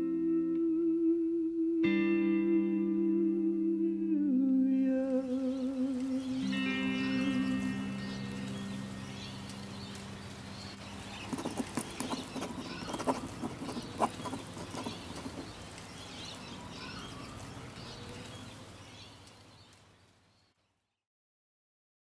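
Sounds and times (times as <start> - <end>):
music: 0.0 - 10.1.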